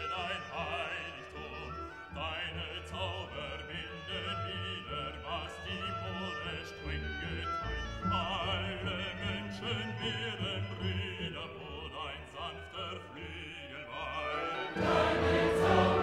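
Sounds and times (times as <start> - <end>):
operatic singing voice: 0.0 - 16.0
sustained accompaniment: 13.2 - 16.0
choir singing: 14.1 - 16.0.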